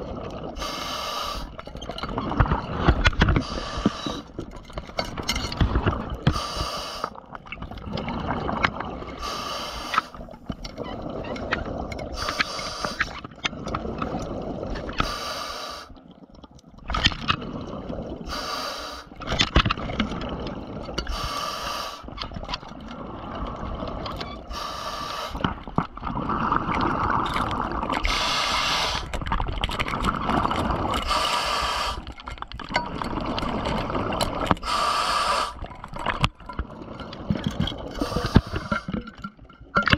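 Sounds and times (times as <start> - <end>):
exhaled air bubbling: 0.0 - 39.9
regulator inhale hiss: 0.6 - 1.6, 3.4 - 4.3, 6.3 - 7.2, 9.2 - 10.2, 12.2 - 13.2, 15.0 - 16.0, 18.3 - 19.2, 21.1 - 22.1, 24.5 - 25.4, 28.0 - 29.1, 31.0 - 32.1, 34.6 - 35.6, 38.0 - 38.9.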